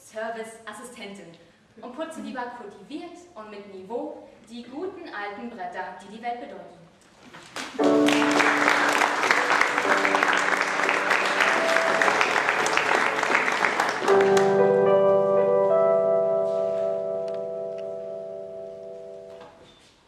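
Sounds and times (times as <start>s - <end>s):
audience applauding: 7.5s - 14.8s
music with long held notes: 7.8s - 19.6s.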